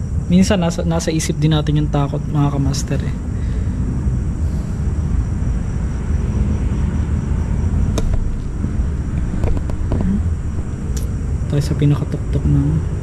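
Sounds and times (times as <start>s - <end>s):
wind buffeting microphone: 3.1s - 11.6s.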